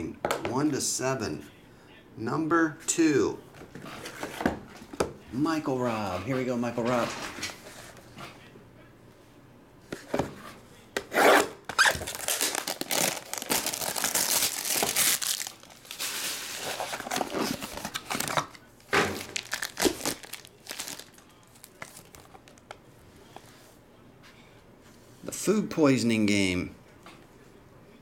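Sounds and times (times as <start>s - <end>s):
plastic wrap tearing and crinkling: 11.7s - 22.6s.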